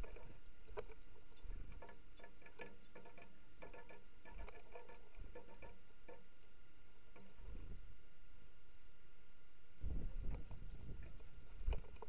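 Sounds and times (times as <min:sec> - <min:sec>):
birds pecking on metal tin: 0:00.0 - 0:06.5.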